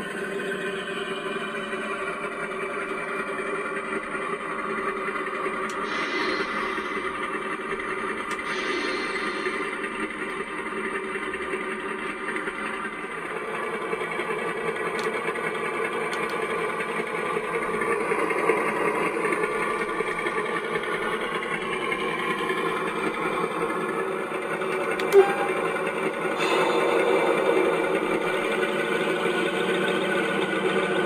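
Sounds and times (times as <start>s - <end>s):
cooling fan sound: 0.0s - 31.0s
model diesel engine sound: 0.0s - 31.0s
brief click: 25.0s - 25.6s.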